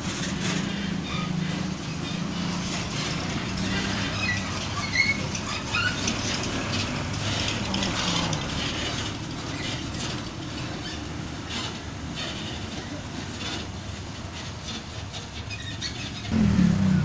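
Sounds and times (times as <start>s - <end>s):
diesel truck engines: 0.0s - 17.0s
trailers rattling and clanking: 0.0s - 17.0s
short high squeaks: 0.5s - 7.6s, 14.4s - 16.4s.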